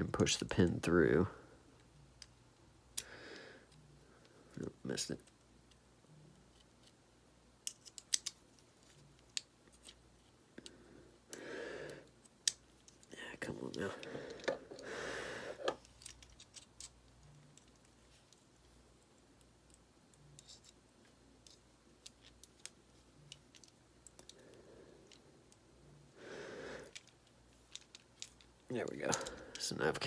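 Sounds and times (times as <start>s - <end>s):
faint metallic clicks and scrapes: 7.6s - 10.8s, 12.0s - 14.8s, 15.5s - 25.6s, 26.8s - 29.8s.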